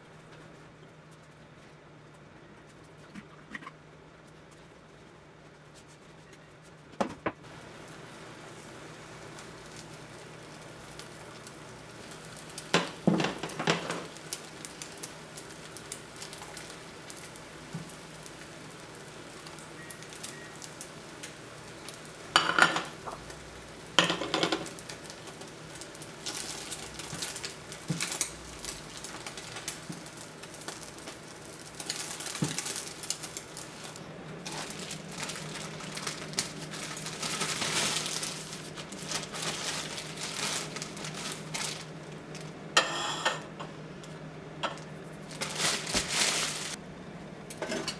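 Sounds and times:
egg sizzling in a pan: 7.4s - 46.8s
utensils clattering on metal pan: 22.4s - 23.0s, 24.0s - 24.8s, 42.8s - 43.5s
plastic bag rustling: 24.1s - 42.6s, 44.8s - 46.8s.

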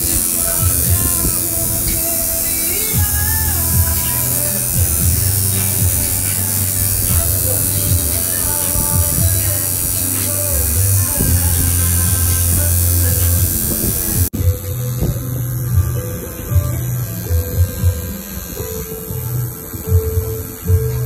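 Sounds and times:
tattoo machine buzzing: 0.0s - 21.0s.

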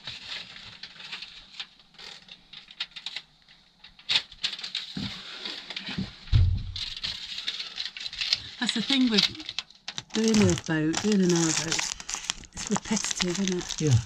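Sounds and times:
foil insulation crinkling: 0.0s - 14.0s
dull bump: 6.3s - 6.9s.

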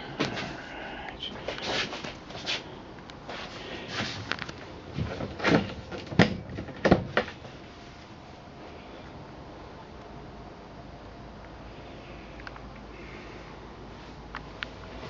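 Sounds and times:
cabinet doors knocking and clunking: 5.4s - 7.3s.

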